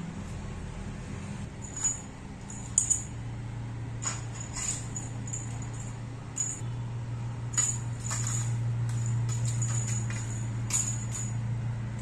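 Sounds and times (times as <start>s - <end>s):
steady low hum: 0.0s - 12.0s
cat toy jingling: 1.6s - 3.2s, 4.0s - 6.7s, 7.5s - 11.5s.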